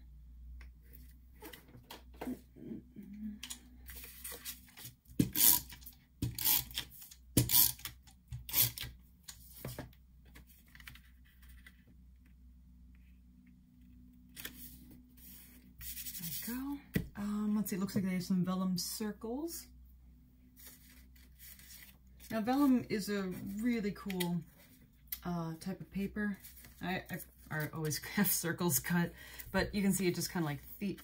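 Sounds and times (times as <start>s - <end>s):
paper rustling: 9.4s - 11.9s, 14.3s - 16.5s, 20.6s - 24.8s, 26.3s - 28.1s.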